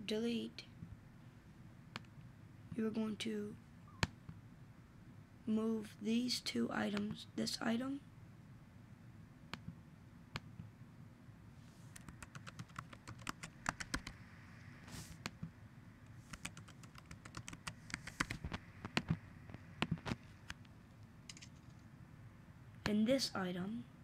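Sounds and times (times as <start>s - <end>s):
laptop keyboard typing: 12.0s - 14.2s, 16.3s - 19.2s, 21.3s - 21.8s.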